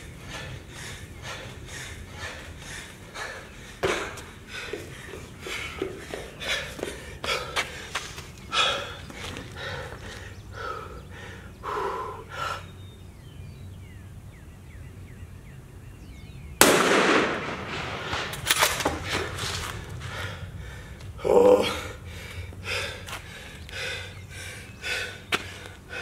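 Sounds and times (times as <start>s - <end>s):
hard rapid breathing: 0.0s - 12.8s, 19.0s - 26.0s
rifle shot: 16.6s - 19.0s.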